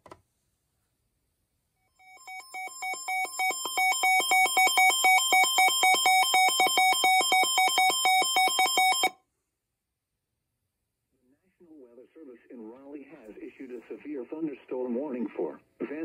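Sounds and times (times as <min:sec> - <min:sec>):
two-pitch emergency alert tone: 0:02.0 - 0:09.1.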